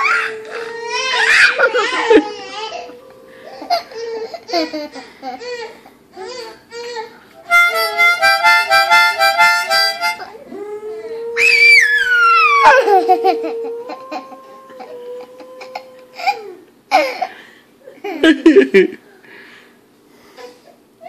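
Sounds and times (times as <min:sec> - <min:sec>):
dog howling: 0:00.0 - 0:04.6, 0:10.2 - 0:16.6
harmonica chords: 0:01.5 - 0:05.8, 0:07.2 - 0:10.4.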